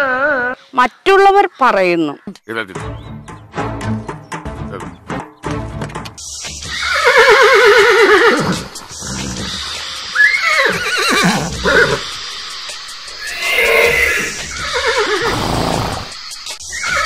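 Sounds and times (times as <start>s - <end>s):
horse whinnying: 6.7s - 12.1s, 13.2s - 16.1s, 16.7s - 17.0s.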